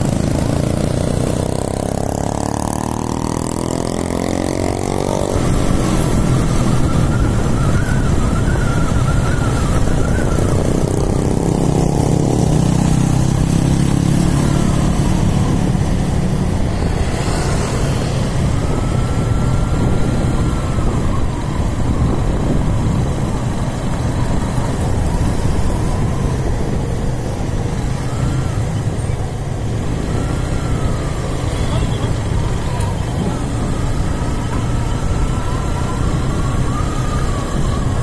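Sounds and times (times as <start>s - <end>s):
motorcycle engine running: 0.0s - 6.4s
road and wind noise: 0.0s - 38.0s.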